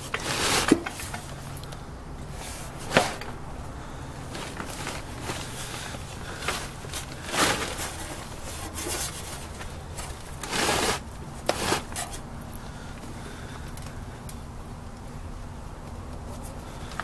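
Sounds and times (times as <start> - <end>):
scraping and rubbing noises: 0.0 - 1.6, 2.3 - 12.2.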